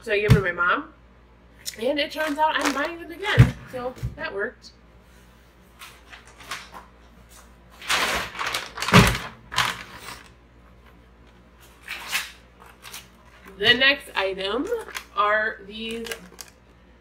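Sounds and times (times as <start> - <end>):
groceries being rummaged through: 1.8 - 4.0, 5.7 - 17.0.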